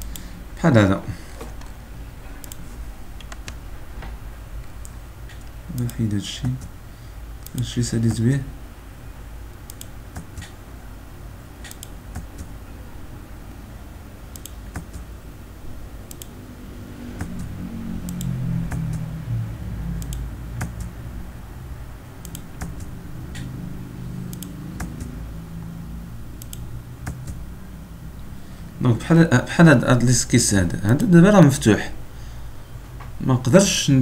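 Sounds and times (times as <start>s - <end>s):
low hum: 0.0s - 34.0s
mouse and keyboard clicks: 9.6s - 10.6s, 11.6s - 12.5s, 14.3s - 15.1s, 16.1s - 16.3s, 17.2s - 19.0s, 20.0s - 20.9s, 22.2s - 23.5s, 24.3s - 25.1s.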